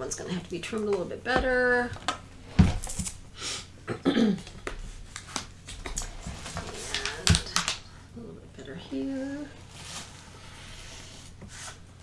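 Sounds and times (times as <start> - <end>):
paper handling: 5.1 - 7.9.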